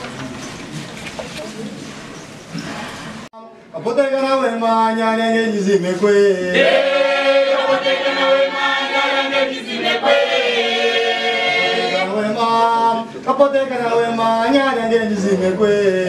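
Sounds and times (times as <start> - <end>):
choir singing chant-like song: 6.6 - 12.4.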